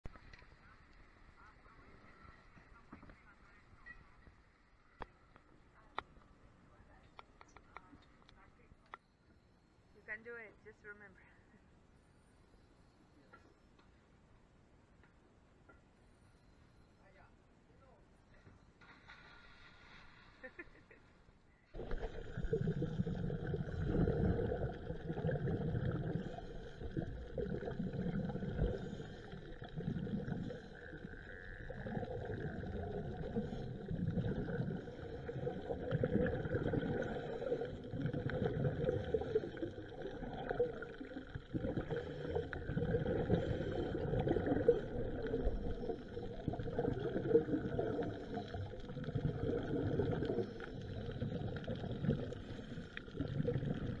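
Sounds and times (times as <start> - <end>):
underwater rumbling and bubbling: 21.8 - 54.0.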